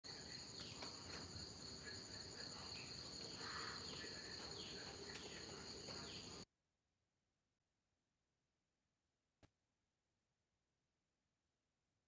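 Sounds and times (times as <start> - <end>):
insects droning: 0.1 - 6.4.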